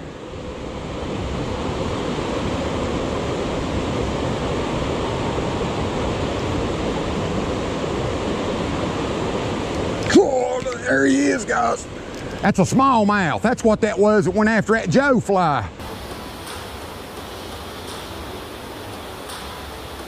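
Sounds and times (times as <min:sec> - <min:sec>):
creek water rushing: 0:15.7 - 0:20.0.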